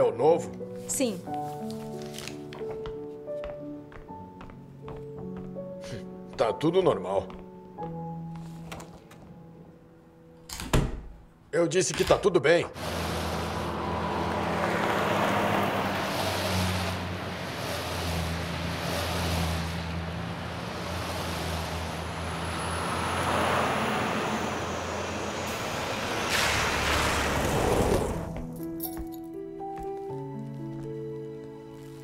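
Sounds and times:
vehicles driving past: 12.8 - 28.6.

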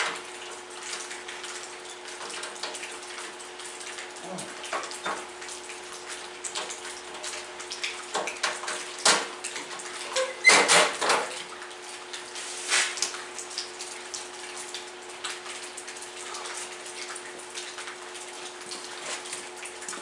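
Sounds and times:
clicks and clatter of hands working: 8.1 - 11.4.

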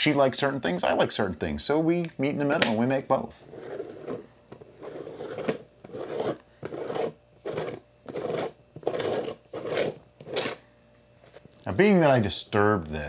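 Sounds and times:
plastic lid scraping on glass jar: 3.5 - 10.6.

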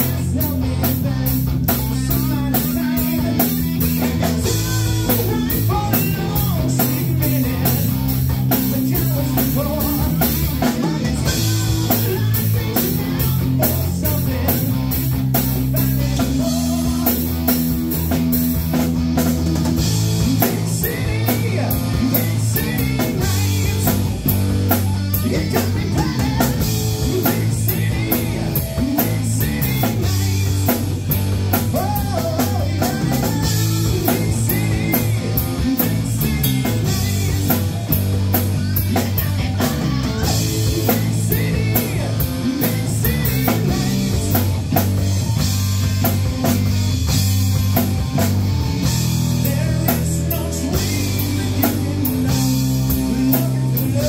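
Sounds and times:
distorted electric guitar: 0.0 - 54.0
drum kit with cymbals and snare: 0.0 - 54.0
electric bass: 0.0 - 54.0.

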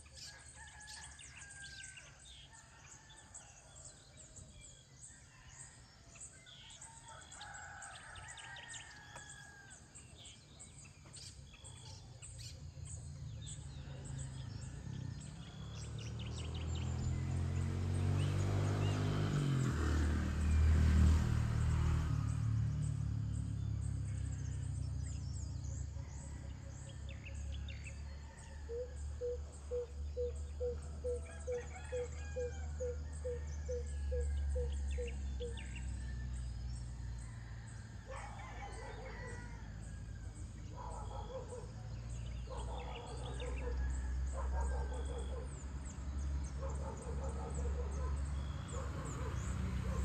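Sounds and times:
roosters crowing: 0.0 - 4.0, 5.0 - 10.4, 23.6 - 50.0
birds chirping: 22.8 - 50.0.

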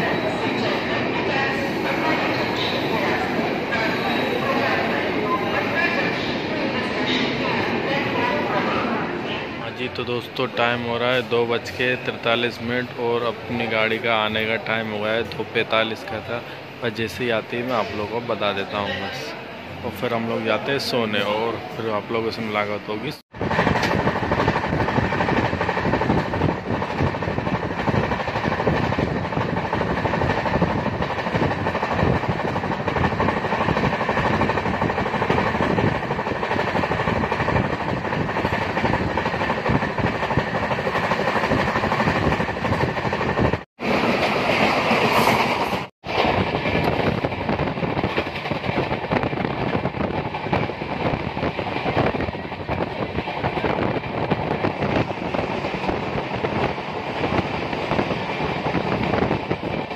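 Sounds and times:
train wheels rumbling on rails: 23.3 - 59.9.

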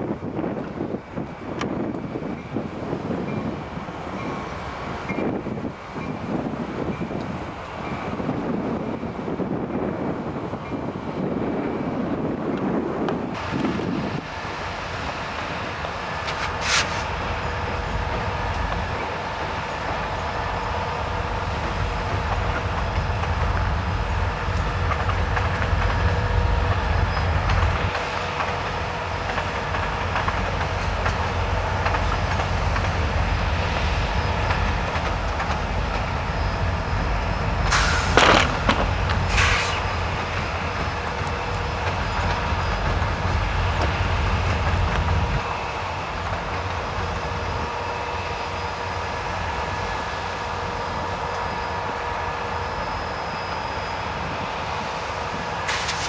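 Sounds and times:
diesel locomotive engine rumbling: 0.0 - 56.0.

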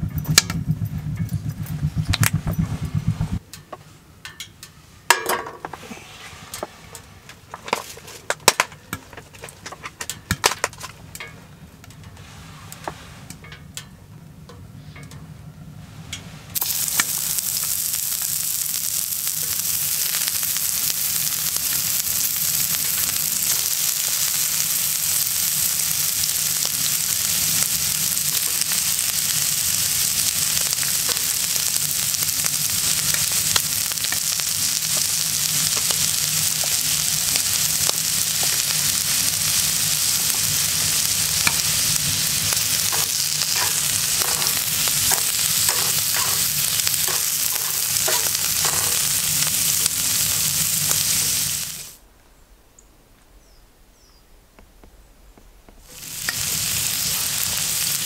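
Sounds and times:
shrimp sizzling in a frying pan: 16.6 - 52.0, 55.8 - 58.0.

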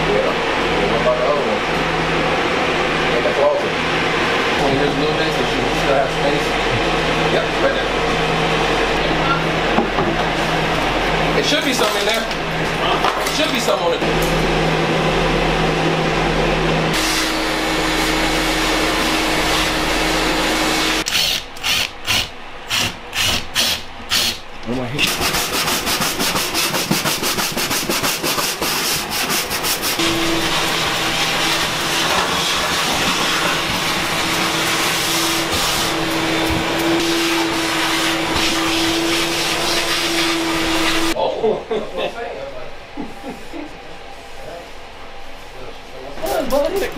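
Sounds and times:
steady motor hum: 0.0 - 46.9
floor scraper scraping floor: 10.0 - 24.4, 25.0 - 41.2.

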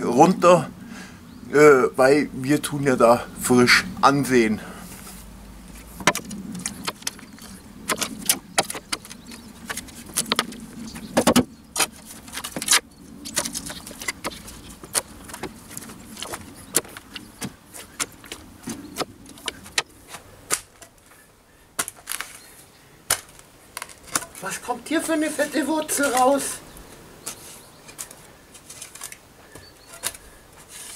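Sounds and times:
shovel scraping into stony soil: 27.2 - 29.2, 29.8 - 30.9.

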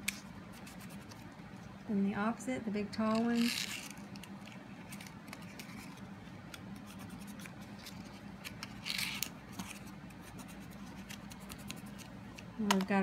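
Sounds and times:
paper crinkle: 3.1 - 12.2
paper ticks and rustles: 10.6 - 13.0.

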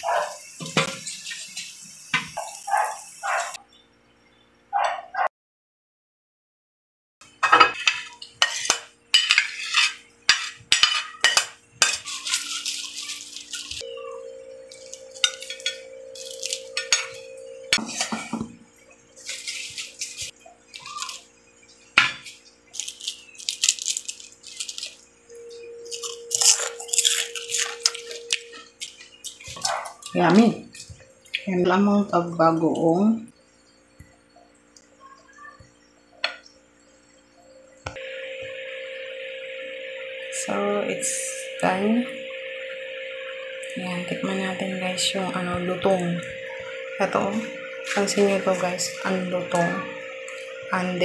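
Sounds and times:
utensils scraping and clinking plate: 7.4 - 13.9, 14.6 - 18.6, 19.2 - 21.3, 25.6 - 31.4
faint steady tones: 11.8 - 19.4, 24.9 - 51.0.

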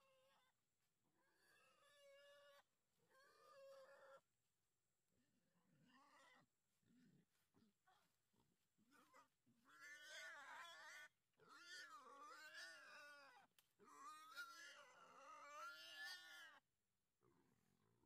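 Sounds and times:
faint wavering animal cries: 1.4 - 4.2.

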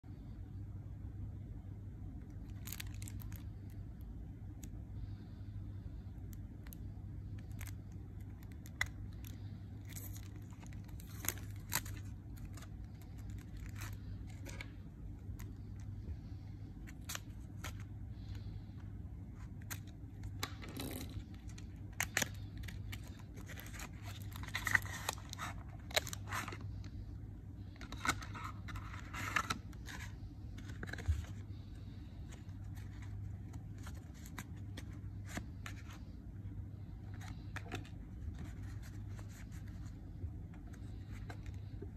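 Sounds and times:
low steady hum: 0.0 - 41.9
cellophane and paper crinkling: 2.2 - 3.8, 6.1 - 18.5, 19.3 - 27.0, 27.6 - 36.2.

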